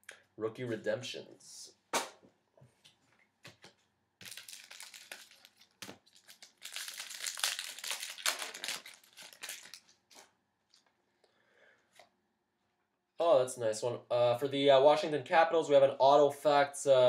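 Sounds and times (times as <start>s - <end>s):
foil wrapper crinkling: 4.2s - 10.9s.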